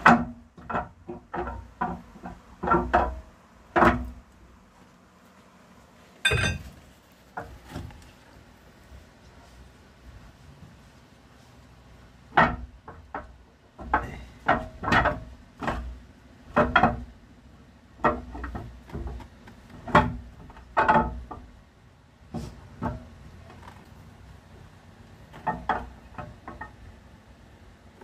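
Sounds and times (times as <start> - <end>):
camshaft knocking and scraping in bores: 0.0 - 4.3, 25.2 - 27.0.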